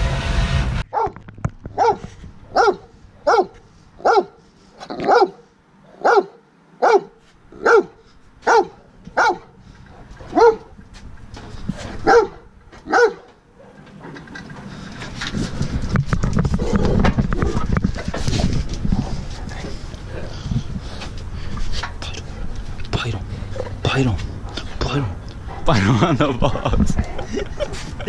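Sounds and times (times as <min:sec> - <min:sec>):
dog barking deeply: 0:01.8 - 0:10.8, 0:11.9 - 0:13.8.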